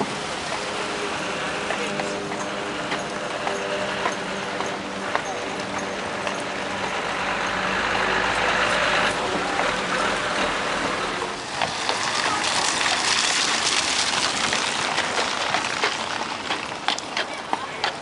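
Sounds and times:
horses' hooves on pavement: 0.0 - 18.0
vehicle engine hum: 0.0 - 18.0
tyre hiss on wet road: 11.4 - 16.7.

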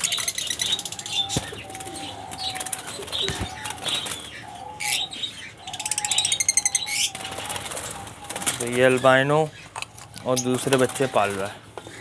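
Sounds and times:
wings fluttering: 0.0 - 4.4, 6.9 - 11.6
lovebirds chattering and chirping: 0.0 - 12.0.

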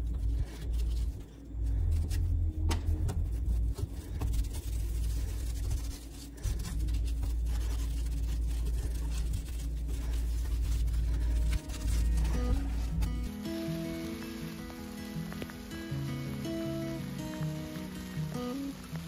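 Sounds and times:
cloth wiping metal hob: 2.0 - 13.3.

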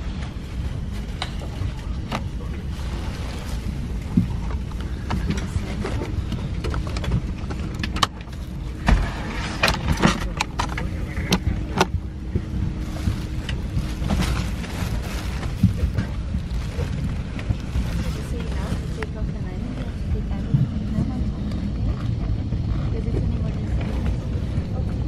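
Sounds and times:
aircraft cabin hum: 0.0 - 25.0.

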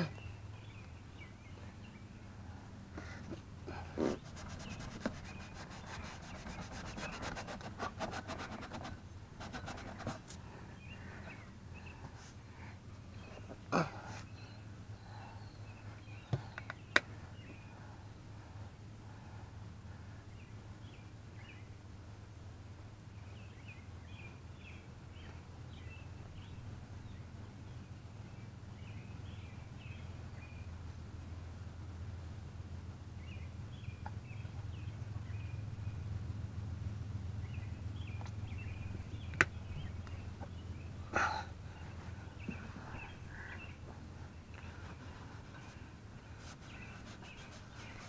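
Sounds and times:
small birds chirping: 0.0 - 19.4, 33.2 - 36.4, 37.4 - 48.0
low steady hum: 0.0 - 48.0.

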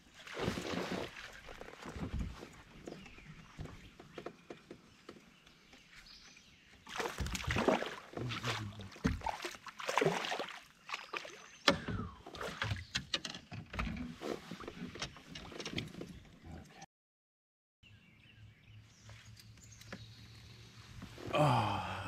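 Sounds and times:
water splashing and sloshing: 0.0 - 16.3.

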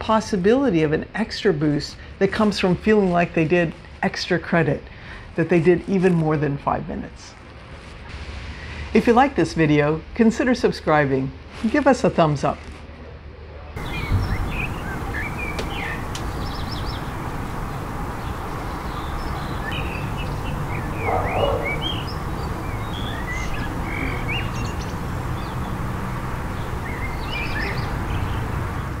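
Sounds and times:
low background rumble: 13.8 - 29.0
small birds chirping: 13.8 - 29.0.

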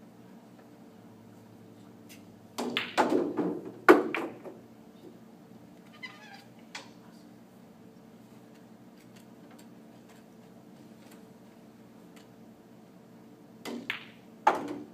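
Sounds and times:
cue striking ball: 2.6 - 4.6, 13.6 - 14.9
pool balls clacking: 2.6 - 4.6, 13.6 - 14.9.

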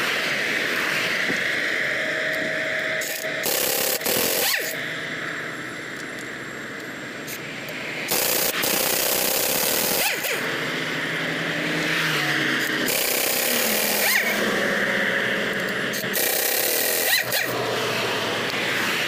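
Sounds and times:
pneumatic impact wrench: 3.0 - 4.8, 8.1 - 10.6, 12.6 - 14.6, 15.9 - 18.9.

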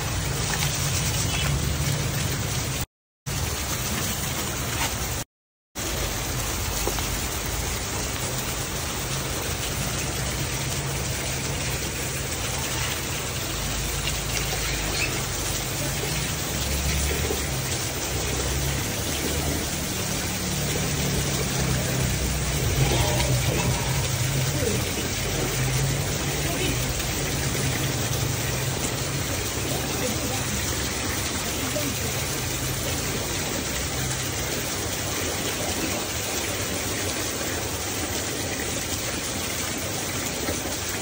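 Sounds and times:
rain falling on concrete: 0.0 - 41.0.

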